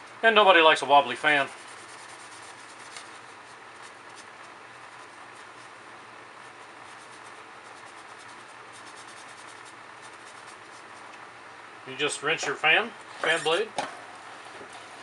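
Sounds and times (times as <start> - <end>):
scrub sponge rubbing: 1.2 - 5.8, 6.4 - 11.1.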